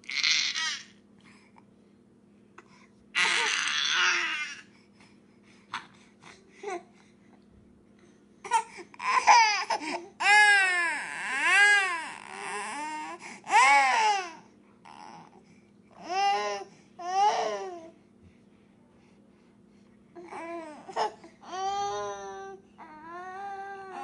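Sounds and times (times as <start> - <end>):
baby crying: 0.0 - 0.9, 3.2 - 4.6, 8.5 - 15.2, 20.3 - 24.0.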